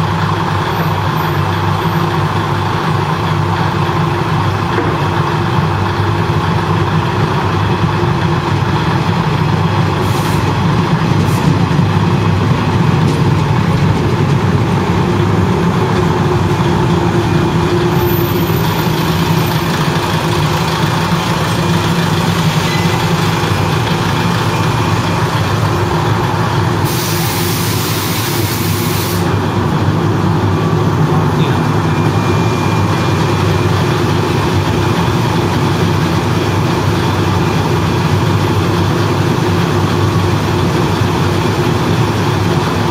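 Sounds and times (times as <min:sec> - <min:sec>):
diesel railcar engine idling: 0:00.0 - 0:42.9
air hiss: 0:26.8 - 0:29.3.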